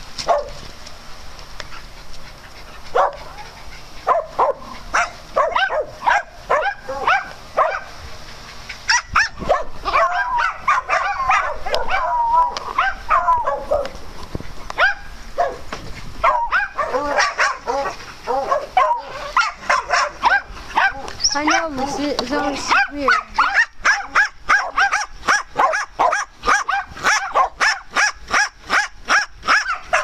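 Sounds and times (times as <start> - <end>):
small dogs barking: 0.2 - 0.6, 2.6 - 14.0, 14.7 - 30.0.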